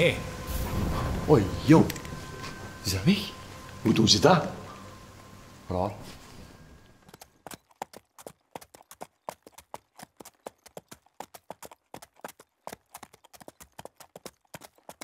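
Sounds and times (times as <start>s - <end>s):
horse hooves clip-clopping: 6.8s - 15.0s.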